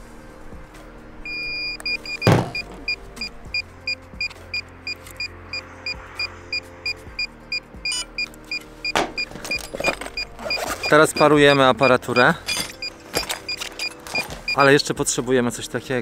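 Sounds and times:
remote controller beeping: 0:07.8 - 0:09.3, 0:10.2 - 0:13.6, 0:14.2 - 0:14.7.

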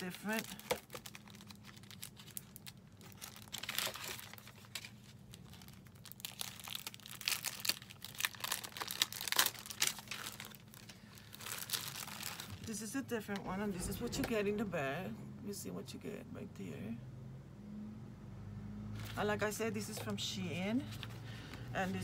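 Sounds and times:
plastic packet crinkling: 0:00.0 - 0:12.8.

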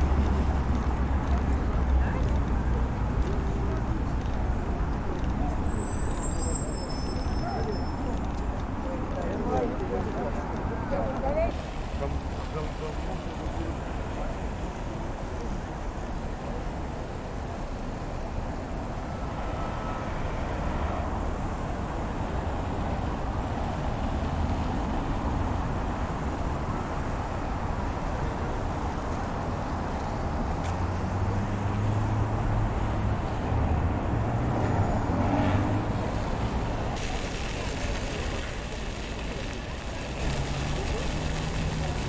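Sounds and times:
passing traffic: 0:00.0 - 0:42.0
vehicle engine hum: 0:28.3 - 0:42.0.

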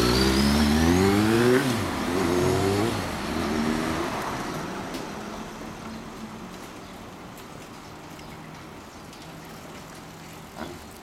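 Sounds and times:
motorcycle engine revving: 0:00.0 - 0:04.2.

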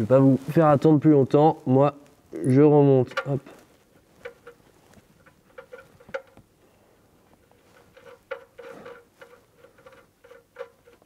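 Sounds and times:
small metallic clicks and scrapes: 0:02.4 - 0:06.5, 0:07.3 - 0:11.0.

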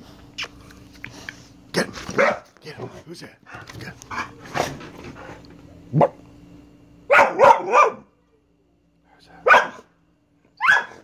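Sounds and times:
dog barking: 0:02.2 - 0:02.5, 0:07.1 - 0:08.1, 0:09.4 - 0:09.9, 0:10.6 - 0:11.0.

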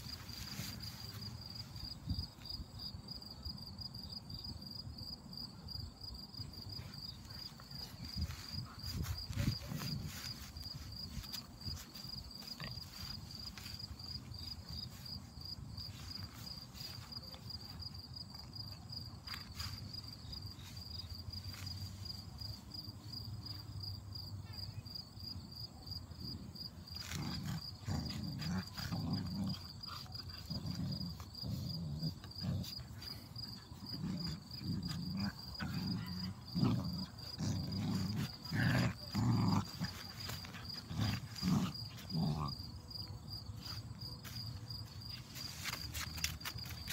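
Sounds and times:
high pulsing insect trill: 0:00.0 - 0:46.9
puppies growling: 0:27.0 - 0:42.9.

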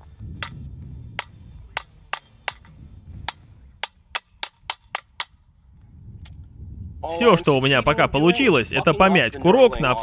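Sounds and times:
sharp metallic knocks: 0:00.4 - 0:05.4.

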